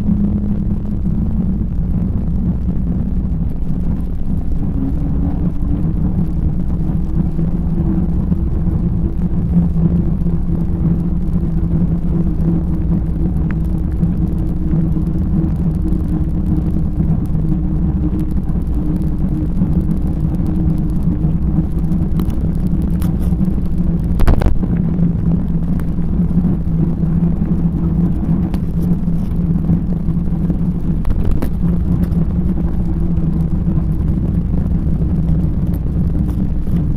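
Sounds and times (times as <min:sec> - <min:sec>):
bicycle tyres rolling on tarmac: 0:00.0 - 0:36.9
wind buffeting microphone: 0:00.0 - 0:36.9.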